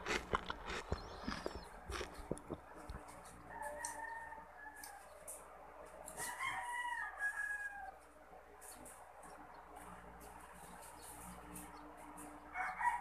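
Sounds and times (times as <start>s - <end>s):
crunching clicks from eating: 0.0s - 4.0s
rooster crowing: 3.4s - 5.2s, 6.1s - 8.0s, 12.5s - 13.0s.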